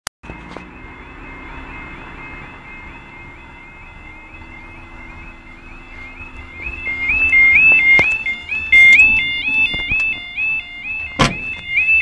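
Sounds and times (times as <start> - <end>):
level crossing alarm warbling: 0.2 - 12.0.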